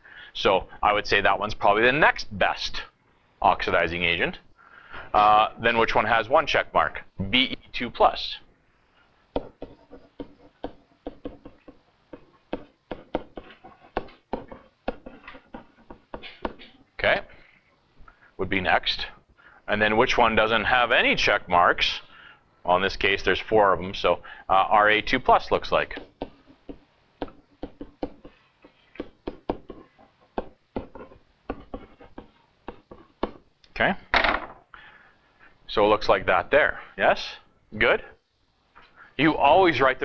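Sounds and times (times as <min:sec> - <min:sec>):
pen tapping on whiteboard: 0:09.4 - 0:16.6, 0:25.9 - 0:28.4, 0:29.0 - 0:33.4.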